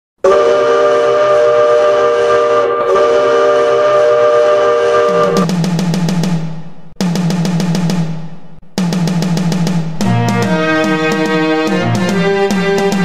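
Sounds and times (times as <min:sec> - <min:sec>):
goal horn blast: 0:00.2 - 0:05.5, 0:10.0 - 0:13.0
song with quick drum beat: 0:05.1 - 0:13.0.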